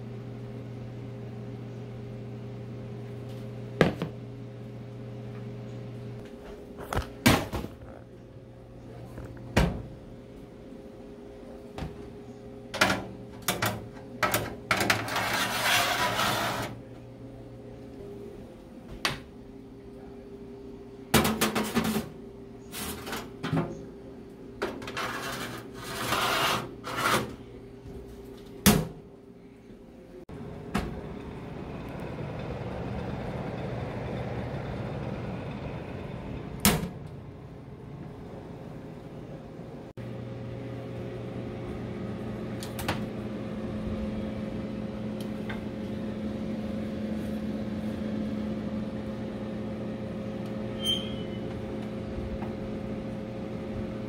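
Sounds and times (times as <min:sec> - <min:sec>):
trays scraping: 0:14.4 - 0:16.8, 0:24.7 - 0:27.4
dehydrator fan rushing air: 0:30.2 - 0:54.0.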